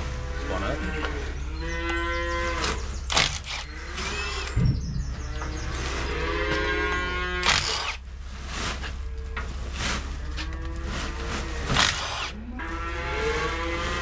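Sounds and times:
cattle mooing: 0.0s - 2.8s, 5.2s - 7.6s, 10.2s - 14.0s
steady low hum: 0.0s - 14.0s.

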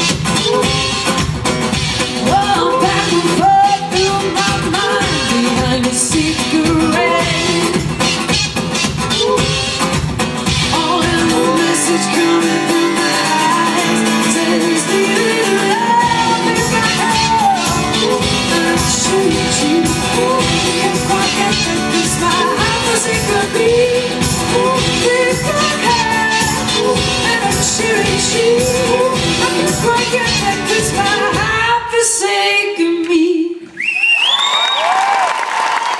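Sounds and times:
pop-rock band playing: 0.0s - 31.9s
woman singing: 2.2s - 8.1s, 10.6s - 33.7s
audience whooping and cheering: 33.7s - 35.9s.

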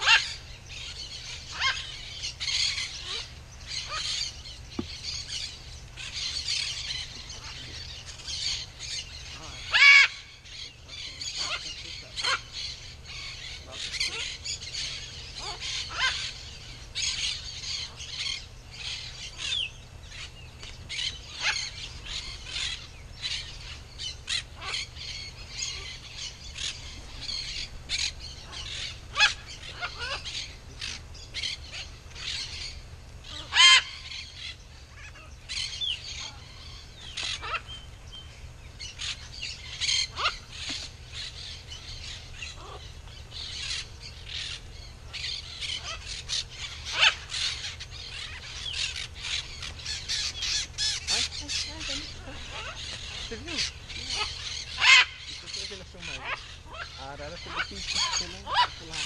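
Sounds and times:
birds chirping and squawking: 0.0s - 59.0s.

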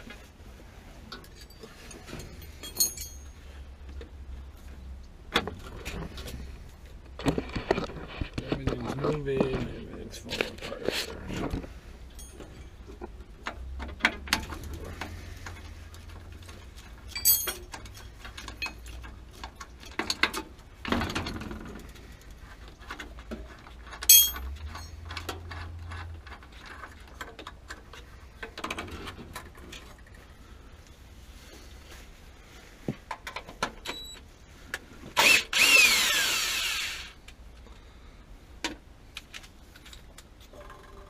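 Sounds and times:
ringing metal clinks: 2.4s - 3.4s, 12.2s - 12.8s, 17.1s - 17.7s, 24.1s - 24.9s.

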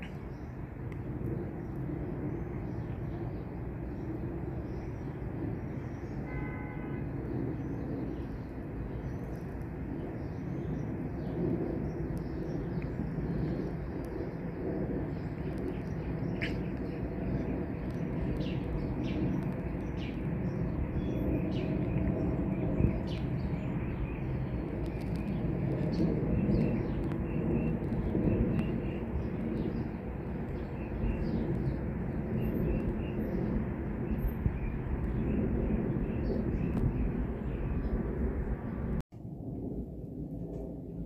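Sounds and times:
small birds chirping: 0.0s - 39.0s
jet airliner rumbling overhead: 0.0s - 41.0s.

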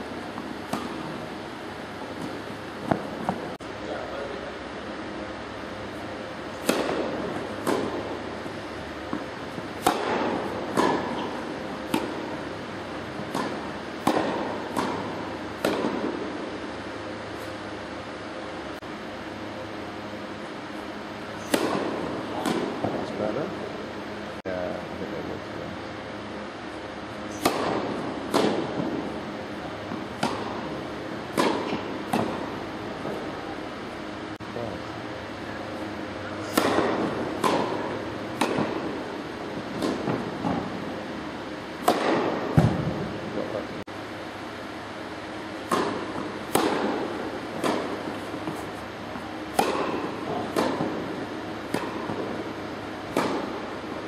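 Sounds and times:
rackets hitting tennis ball: 0.1s - 3.6s, 6.0s - 16.7s, 21.4s - 23.5s, 27.2s - 33.3s, 35.8s - 43.5s, 45.4s - 54.0s
tennis ball bouncing on court: 0.3s - 1.4s, 2.0s - 3.5s, 6.6s - 12.5s, 13.2s - 16.3s, 29.9s - 32.4s, 36.5s - 39.0s, 45.6s - 54.0s.

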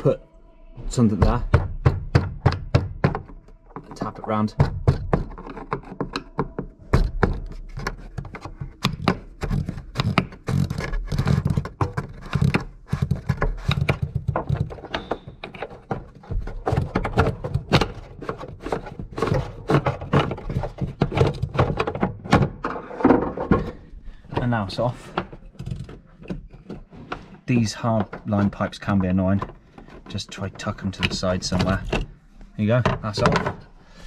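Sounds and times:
rubbing and handling noise: 2.4s - 34.0s.

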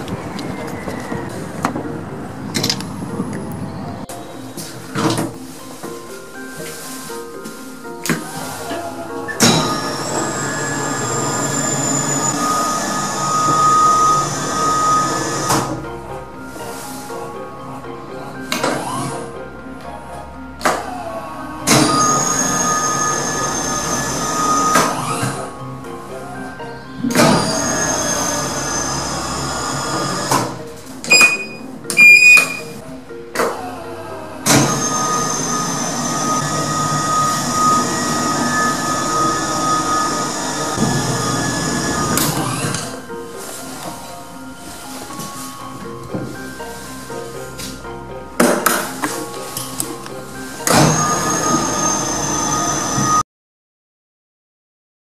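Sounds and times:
platform lift whine and rumble: 0.0s - 7.2s, 7.8s - 43.7s.

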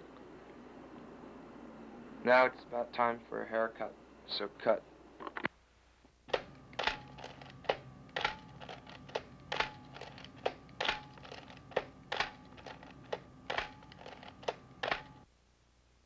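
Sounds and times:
humming held tones: 6.3s - 15.3s
sharp clicks: 6.3s - 15.3s.

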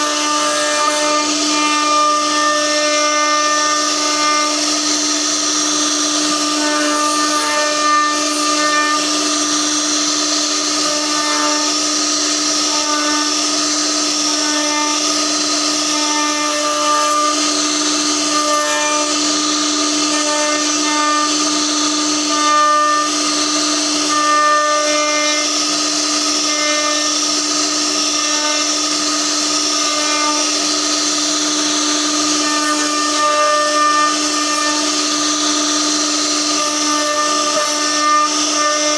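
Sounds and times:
router spindle high whine: 0.0s - 38.9s.

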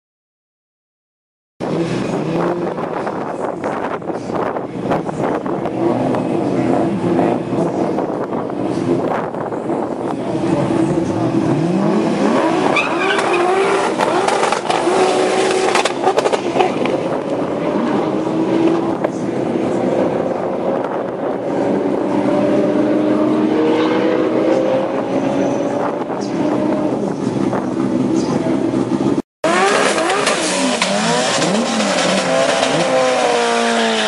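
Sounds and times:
drag racing cars accelerating: 1.6s - 34.0s.

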